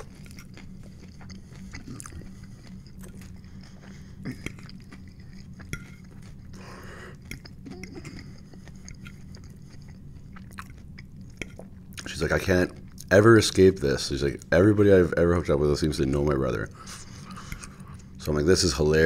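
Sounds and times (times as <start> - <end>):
person chewing food: 0.0 - 13.2, 16.7 - 18.2
steady low hum: 0.0 - 19.0.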